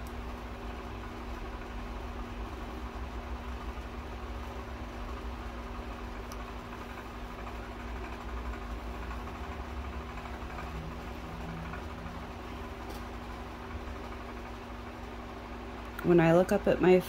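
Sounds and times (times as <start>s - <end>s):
electric fan humming: 0.0s - 17.0s.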